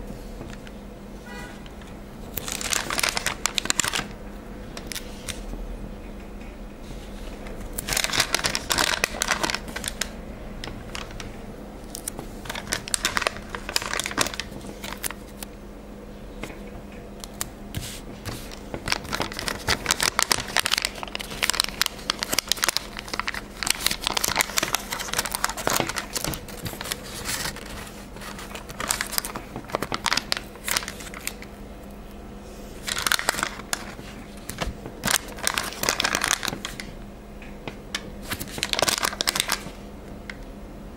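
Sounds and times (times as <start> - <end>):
steady low hum: 0.0 - 40.9
sticker sheet crinkling: 2.3 - 4.1, 7.6 - 15.5, 17.2 - 31.5, 32.8 - 36.9, 37.9 - 39.8.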